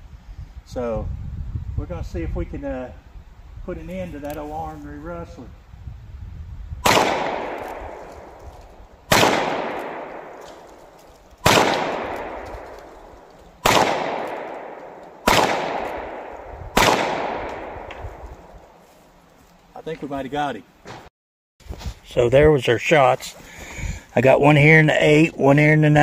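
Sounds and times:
revolver shots with echo: 6.8 - 8.4, 9.1 - 10.7, 11.4 - 12.7, 13.6 - 18.2.

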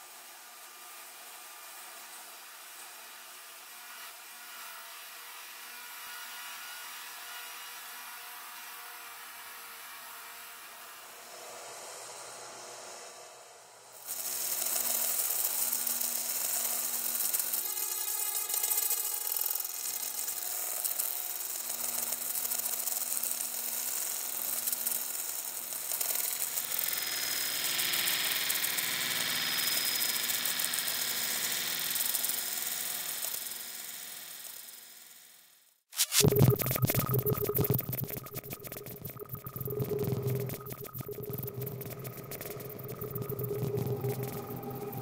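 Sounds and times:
glitchy granular hiss: 36.0 - 45.0
rapid fluttering repeat: 36.0 - 45.0.

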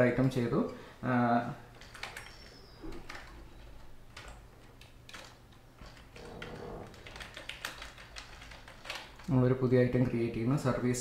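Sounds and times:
keyboard keystrokes: 4.1 - 9.3.

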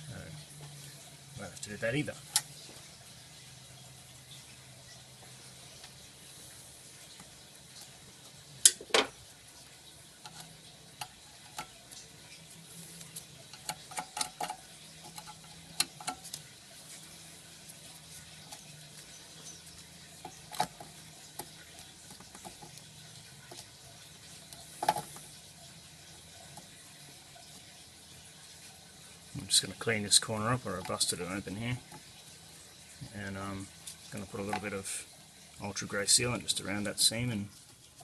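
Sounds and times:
parts clicking and knocking: 10.2 - 25.5.

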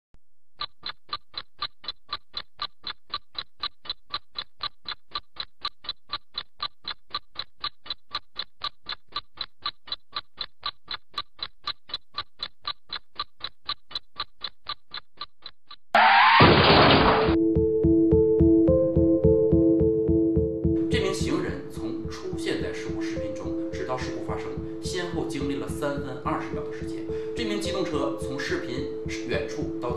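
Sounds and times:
clock-like ticking: 0.5 - 16.0, 17.3 - 29.9
music: 17.4 - 29.9.

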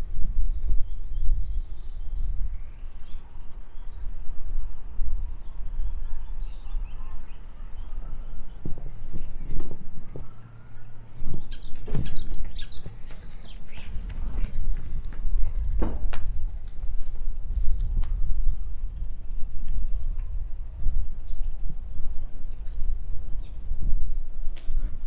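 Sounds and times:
bicycle ride rumble: 0.0 - 25.0
birds chirping faintly: 0.4 - 15.6
sharp clicks and rattles: 11.5 - 25.0.

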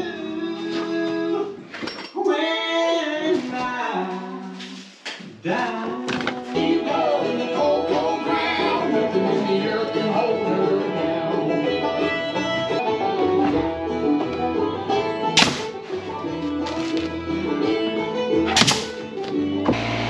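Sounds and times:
bluegrass music with banjo: 5.5 - 20.0
sharp crack: 15.4 - 16.0, 18.5 - 19.2.

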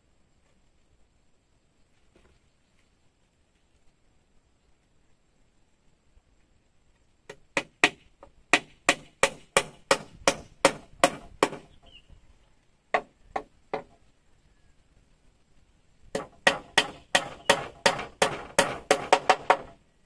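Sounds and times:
blade chopping wood: 16.2 - 19.8.

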